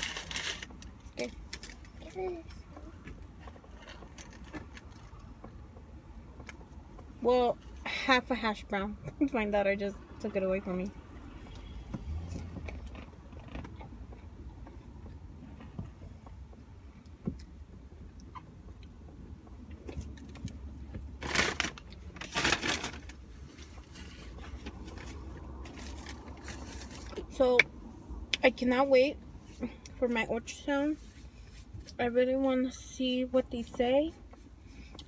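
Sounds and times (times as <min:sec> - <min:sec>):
paper packaging rustling: 0:21.2 - 0:23.2.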